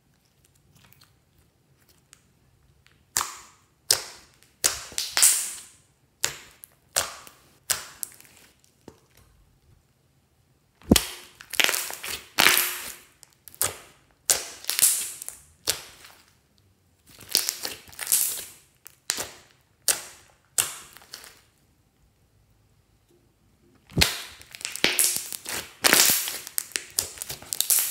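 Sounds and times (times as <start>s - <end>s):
slime air pockets popping: 10.8s - 12.8s, 23.8s - 27.9s.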